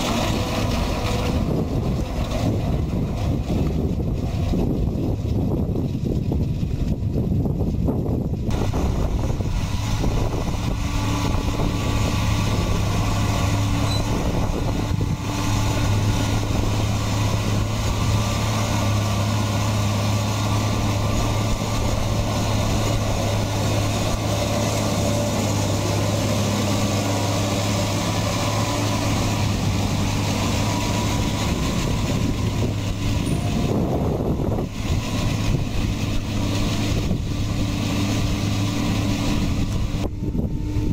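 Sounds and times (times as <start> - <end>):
tractor engine running: 0.0 - 40.9
wide rushing noise: 8.5 - 40.9.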